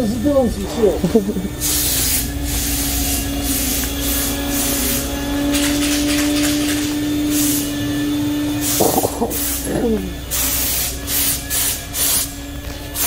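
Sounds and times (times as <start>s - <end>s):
steady low hum: 0.0s - 13.0s
spray gun hissing: 1.5s - 5.4s, 7.3s - 7.8s, 8.6s - 12.4s.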